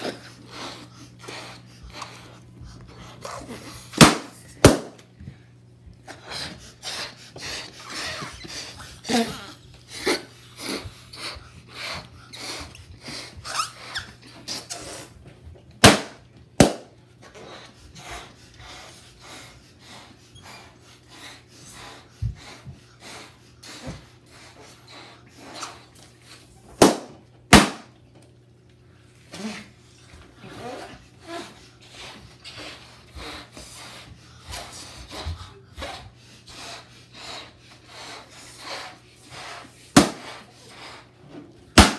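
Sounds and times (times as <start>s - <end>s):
balloons being blown up: 3.9s - 5.0s, 15.8s - 16.9s, 26.8s - 27.9s, 39.4s - 41.0s
balloon pops: 4.0s - 5.0s, 15.8s - 16.9s, 26.8s - 27.9s, 40.0s - 40.4s
squeaky rubbing of rubber: 13.4s - 15.1s, 30.5s - 33.4s.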